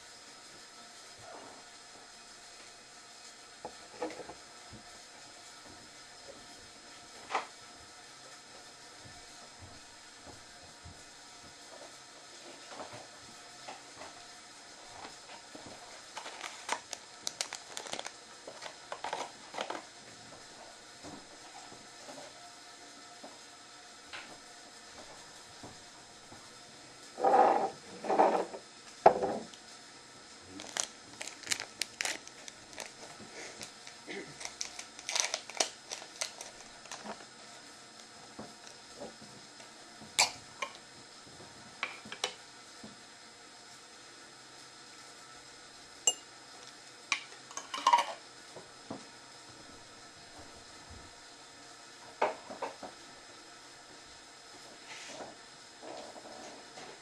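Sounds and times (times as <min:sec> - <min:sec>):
small crackles and crinkling clicks: 0:14.9 - 0:22.4, 0:30.5 - 0:37.3, 0:37.9 - 0:42.9.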